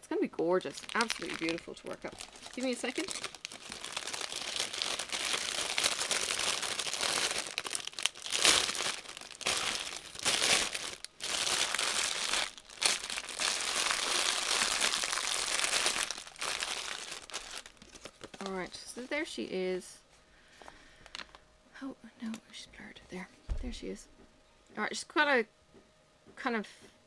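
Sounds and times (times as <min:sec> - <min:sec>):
plastic bags crinkling: 0:00.3 - 0:19.5, 0:21.0 - 0:21.4.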